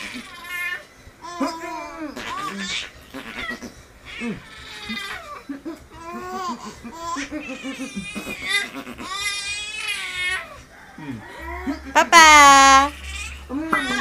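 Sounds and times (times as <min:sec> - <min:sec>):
baby laughing and squealing: 0:12.8 - 0:14.0.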